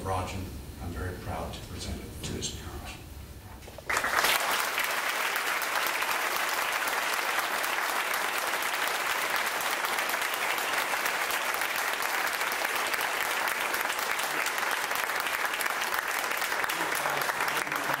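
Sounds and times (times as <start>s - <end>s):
audience applauding: 3.8s - 18.0s.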